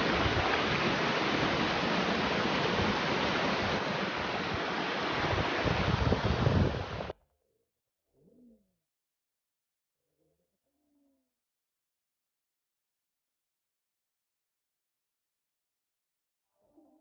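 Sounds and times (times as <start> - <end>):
waterfall rushing: 0.0 - 7.1
wind buffeting microphone: 0.0 - 7.1.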